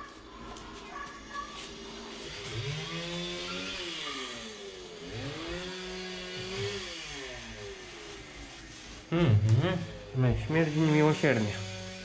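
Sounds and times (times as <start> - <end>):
power tool motor running: 1.7 - 12.0.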